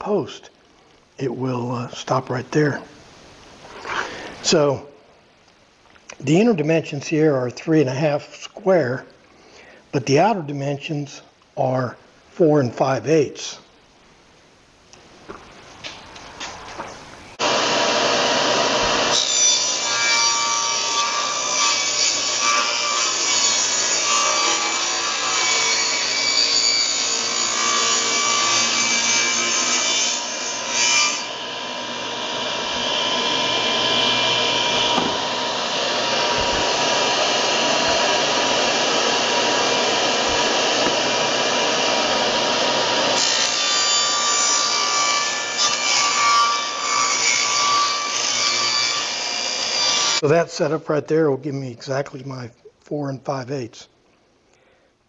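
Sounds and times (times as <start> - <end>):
table saw cutting plywood: 17.4 - 50.2.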